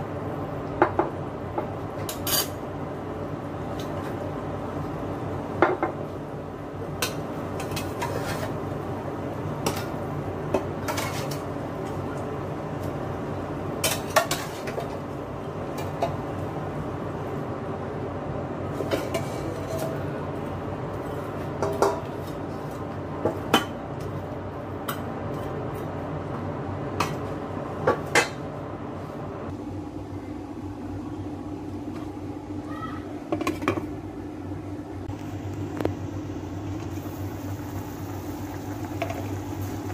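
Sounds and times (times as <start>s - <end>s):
spatula scraping a bowl: 7.6s - 8.6s, 19.0s - 20.0s.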